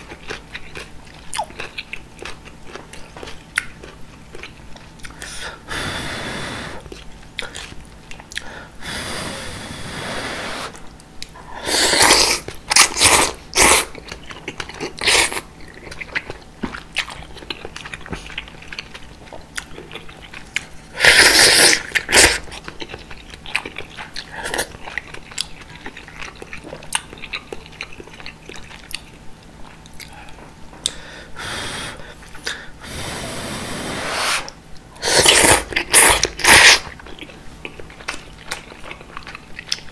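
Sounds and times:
wet chewing: 0.0 - 5.3, 10.8 - 31.0, 34.8 - 39.9
slurping noodles: 8.8 - 10.8, 11.6 - 13.9, 21.0 - 22.4, 32.8 - 36.8.

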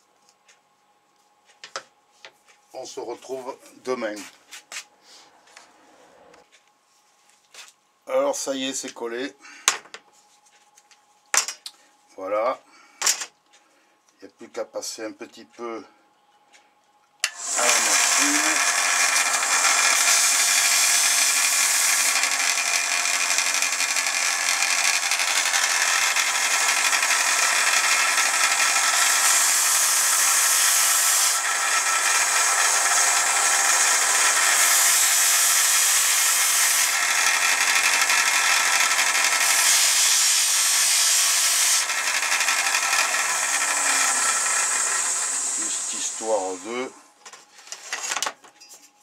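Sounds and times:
disc sander motor whine: 17.2 - 47.1
wood grinding on sanding disc: 17.3 - 47.0.

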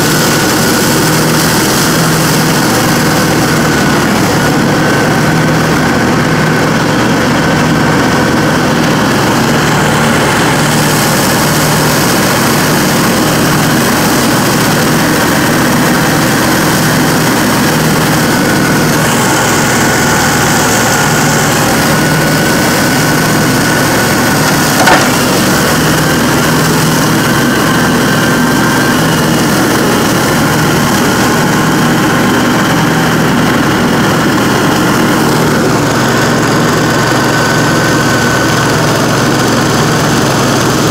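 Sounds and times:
riding mower running: 0.0 - 40.9
sharp knock: 24.8 - 25.6.

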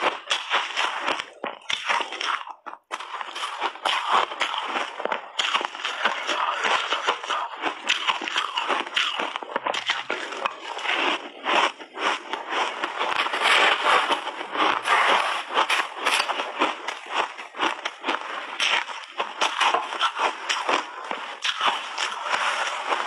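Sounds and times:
chewing crunchy ice: 0.0 - 23.0
spoon digging into ice: 14.8 - 16.4.

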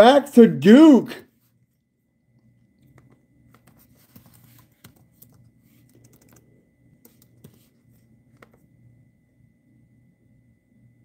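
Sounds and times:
laptop keyboard typing: 2.8 - 8.6.

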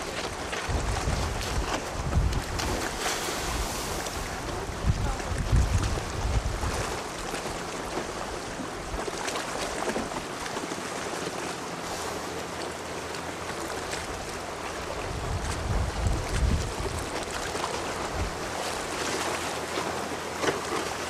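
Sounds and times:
wind buffeting microphone: 0.0 - 9.1, 14.1 - 18.9
choppy sea washing: 0.0 - 21.0.

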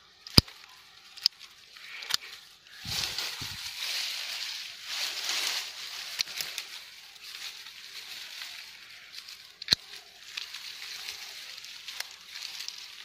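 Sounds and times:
leafy branches rustling: 0.0 - 13.0.

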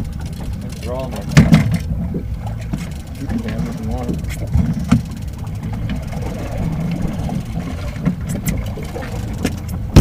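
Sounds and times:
outboard motor running: 0.0 - 10.0.

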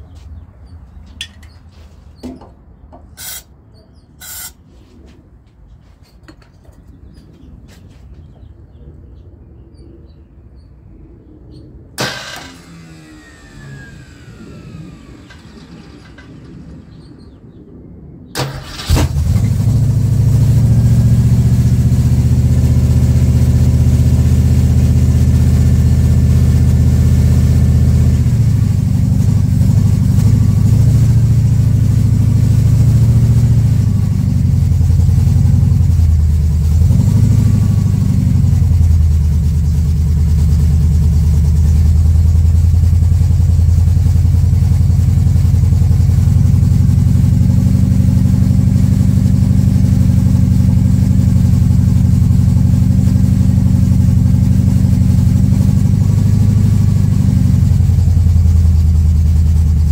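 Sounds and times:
car engine revving: 12.0 - 17.3, 18.4 - 59.9.

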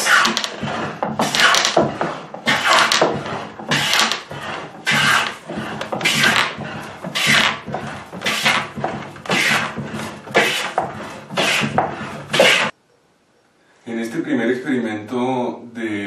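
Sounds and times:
hand plane shaving board: 0.0 - 12.7.

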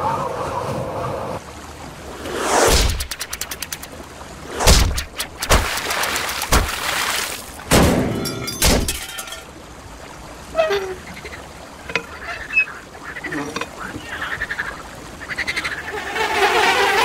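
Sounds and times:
rapid ticks: 2.9 - 4.0
dull thuds with crackle: 4.6 - 9.0.

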